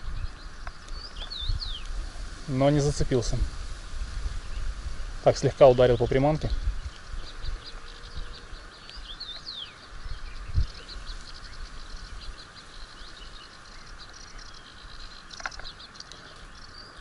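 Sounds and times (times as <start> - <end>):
small birds chirping: 0.0 - 17.0
steady hiss: 0.0 - 17.0.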